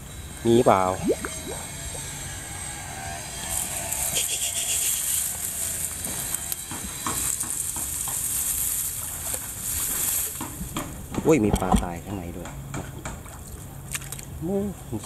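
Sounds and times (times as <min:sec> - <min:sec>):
steady high hiss: 0:00.0 - 0:10.6
water dripping: 0:01.0 - 0:01.7
wet plants rustling: 0:03.5 - 0:10.9.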